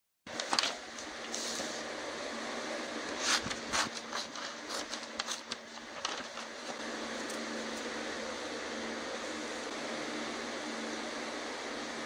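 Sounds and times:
paper rustling and crinkling: 0.3s - 1.6s, 3.2s - 7.8s.

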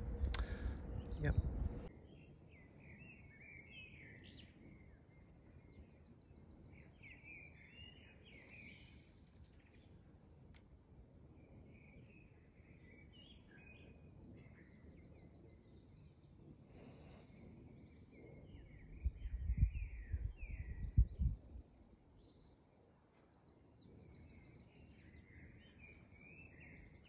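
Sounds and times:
songbirds chirping and trilling: 0.0s - 27.0s.

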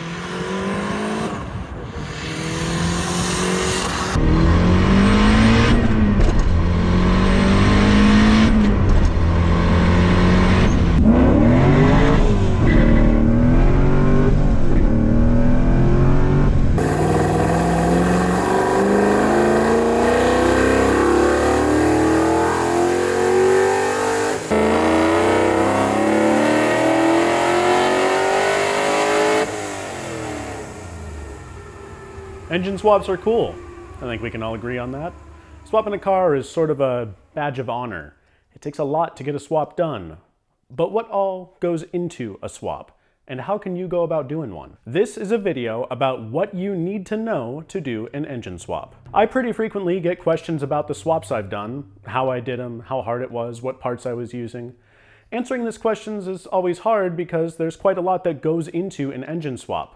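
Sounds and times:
engine revving up: 0.0s - 37.2s
car engine accelerating: 0.0s - 37.4s.

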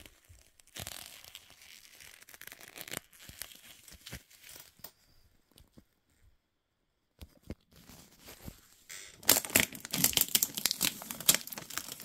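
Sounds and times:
plastic packaging crinkling: 9.2s - 12.0s.

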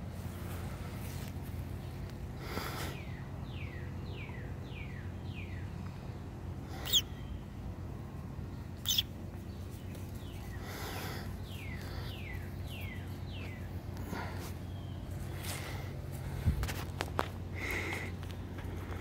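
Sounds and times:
steady low hum: 0.0s - 19.0s
bird calling in short notes: 6.8s - 7.4s, 8.8s - 9.1s.

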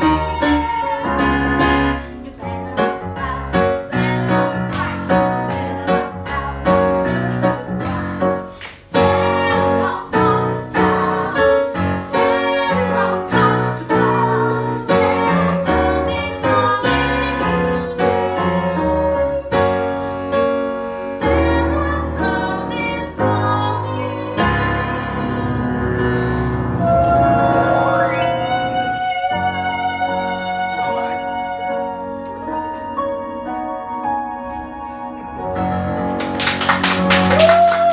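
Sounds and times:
woman singing: 0.0s - 19.6s, 21.1s - 25.6s, 26.8s - 31.9s
digital piano accompaniment: 0.0s - 37.9s.

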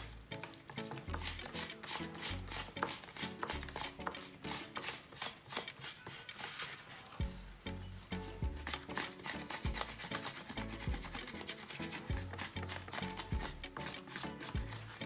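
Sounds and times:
scraping cactus skin: 0.0s - 15.0s
background music with bass: 7.2s - 8.9s, 10.6s - 11.2s, 12.0s - 15.0s.

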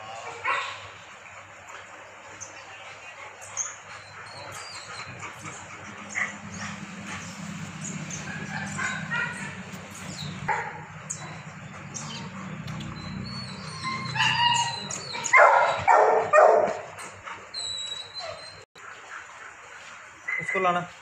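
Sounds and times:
dog barking and yipping: 0.3s - 0.8s, 5.3s - 18.6s.

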